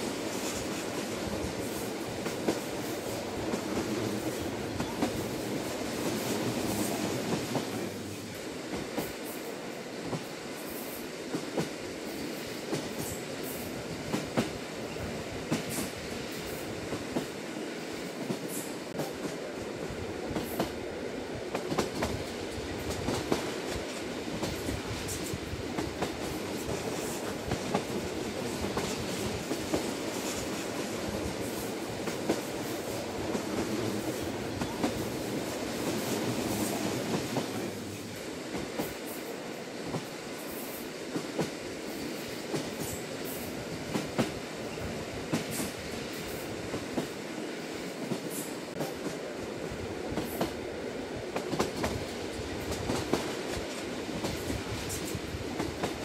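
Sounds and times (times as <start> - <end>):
train wheels rumbling on rail: 0.0 - 56.0.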